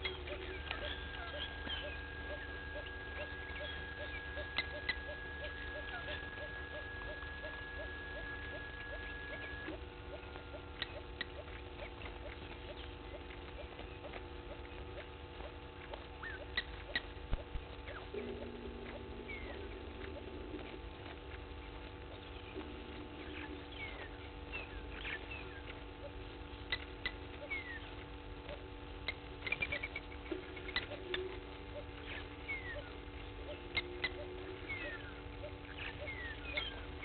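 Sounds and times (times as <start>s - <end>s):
thin steady tone: 0.0s - 17.2s, 17.8s - 27.7s
bird chirps: 0.0s - 37.0s
low hum: 0.0s - 37.0s.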